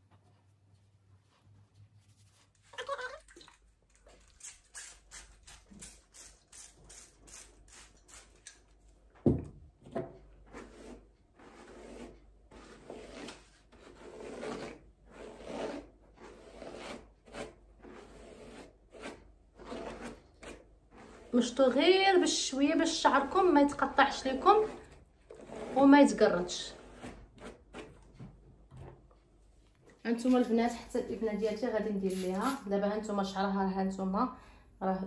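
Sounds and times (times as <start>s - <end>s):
brush swishing through wet hair: 1.2s - 2.8s.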